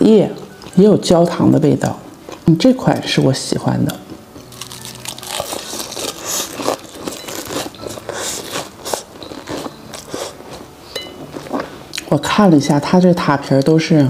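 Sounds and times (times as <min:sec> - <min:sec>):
person chewing crunchy pastry: 0:04.1 - 0:12.0.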